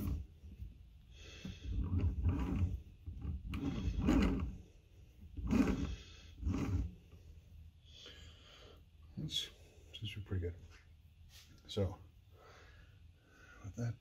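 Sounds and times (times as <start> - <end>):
belt and motor rumbling: 0.0 - 0.7, 1.4 - 7.2.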